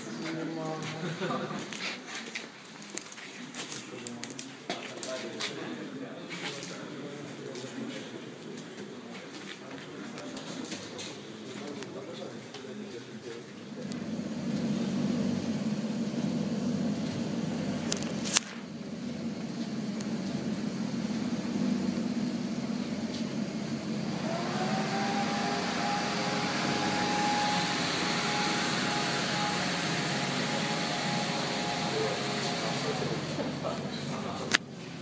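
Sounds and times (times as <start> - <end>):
car engine at low revs: 13.7 - 34.7
higher steady drone: 18.8 - 34.4.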